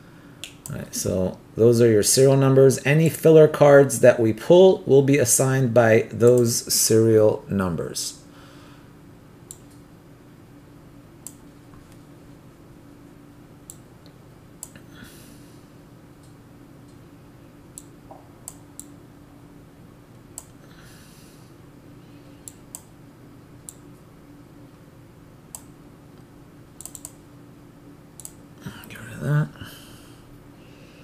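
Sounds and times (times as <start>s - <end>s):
faint steady hum: 0.0s - 31.0s
sharp clicks: 22.5s - 22.9s, 25.5s - 25.7s, 26.8s - 27.2s, 28.2s - 29.0s.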